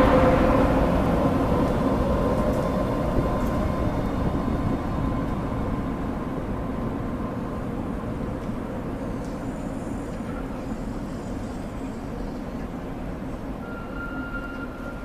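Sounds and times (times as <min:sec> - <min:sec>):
electric locomotive hum: 0:00.0 - 0:15.0
train wheels rumbling: 0:00.0 - 0:15.0.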